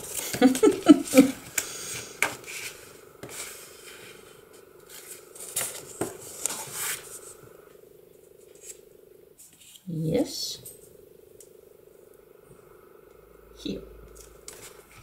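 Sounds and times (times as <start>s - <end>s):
paper rustling and sliding: 0.0s - 7.4s, 14.2s - 15.0s.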